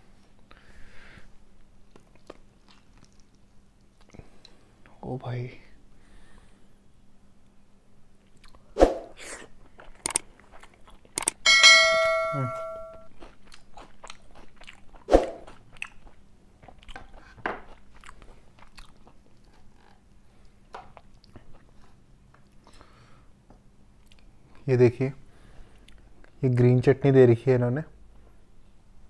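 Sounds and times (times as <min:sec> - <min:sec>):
chewing fried fish: 0:01.8 - 0:04.5, 0:09.4 - 0:11.4, 0:13.1 - 0:22.9
ringing ding: 0:11.4 - 0:13.1.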